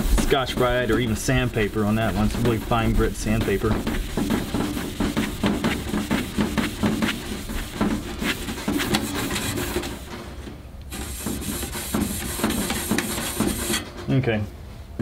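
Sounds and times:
abrasive pad scrubbing metal: 0.0 - 10.2, 10.9 - 14.0.

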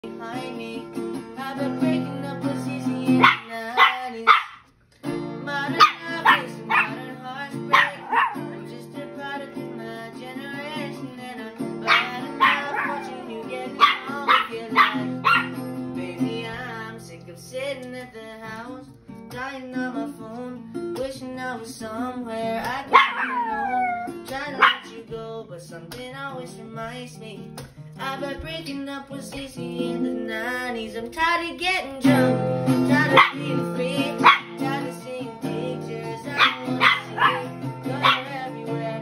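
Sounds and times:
strummed acoustic guitar: 0.0 - 39.0
dog whining and yelping: 11.8 - 13.1, 13.8 - 15.6, 23.0 - 24.9, 36.3 - 38.4.

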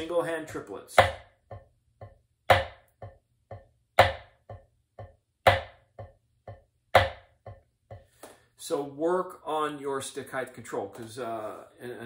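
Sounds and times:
drumstick striking drum head: 0.9 - 8.2.

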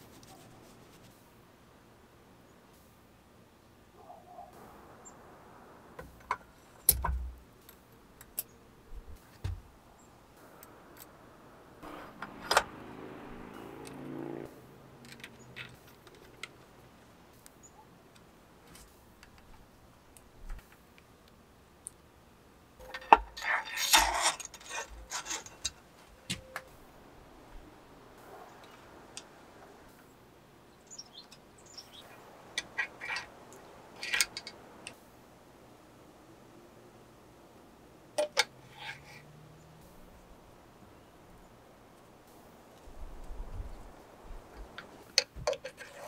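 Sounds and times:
metal parts clattering: 22.8 - 25.8.

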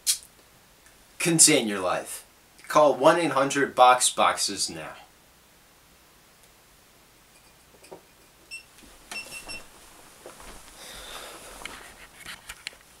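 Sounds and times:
rustling: 8.8 - 13.0.

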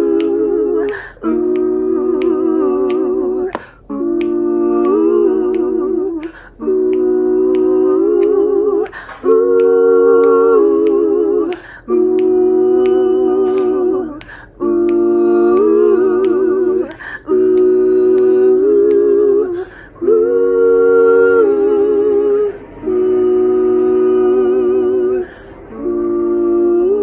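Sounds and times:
women humming in harmony: 0.0 - 27.0
breaths: 0.9 - 1.2, 3.6 - 3.9, 6.2 - 6.6, 8.9 - 9.2, 11.5 - 11.9, 14.2 - 14.6, 16.9 - 17.3, 19.6 - 20.0, 25.2 - 25.7.

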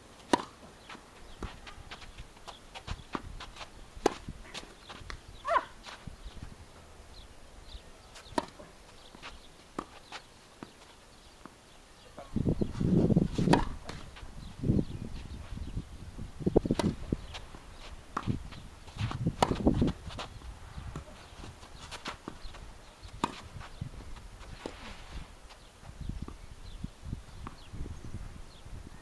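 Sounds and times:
tennis ball bouncing on court: 0.3 - 0.6, 13.4 - 14.1, 16.7 - 17.5, 18.1 - 20.3, 20.9 - 23.8
tennis ball struck by rackets: 0.3 - 0.6, 8.3 - 8.7, 13.4 - 14.1, 16.7 - 17.2, 19.3 - 19.9
footsteps on court: 0.4 - 6.5, 8.2 - 11.5, 16.8 - 26.0.

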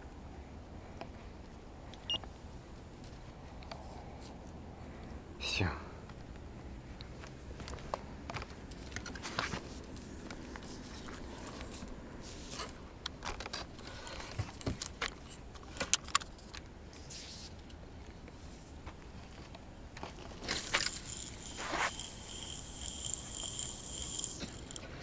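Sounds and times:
fishing rod and reel clicks: 20.4 - 24.9
fishing line hissing off reel: 20.5 - 24.8.

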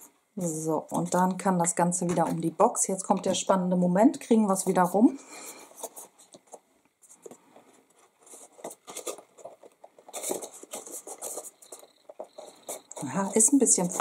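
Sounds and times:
small taps and rustles: 5.8 - 14.0
paper rubbing and scraping: 8.0 - 14.0.

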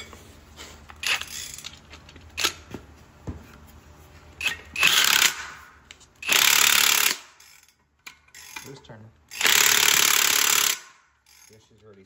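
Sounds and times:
tools clicking and knocking: 0.9 - 2.8, 4.4 - 12.0
power ratchet burst: 4.8 - 5.6, 6.2 - 7.7, 9.3 - 11.6.

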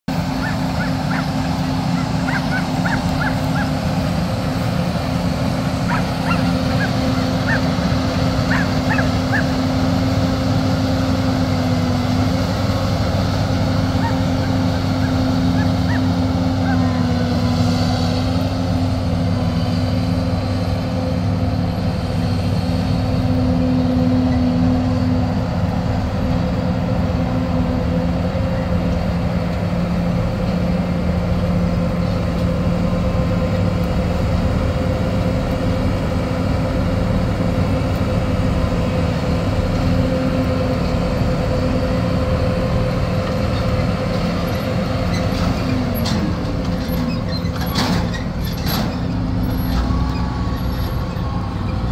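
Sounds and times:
combine harvesters running: 0.0 - 51.9.

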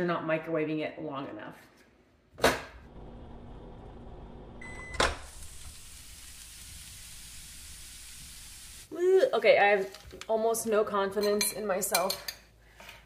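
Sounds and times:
microwave oven humming: 2.9 - 6.4.

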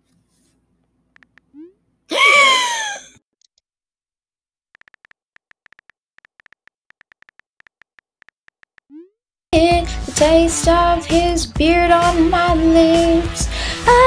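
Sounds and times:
falling wail: 2.1 - 3.1
phone keyboard tapping: 4.8 - 9.0.

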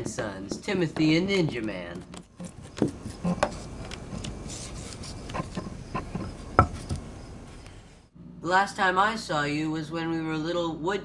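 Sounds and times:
scraping on wooden plank: 0.0 - 7.7.

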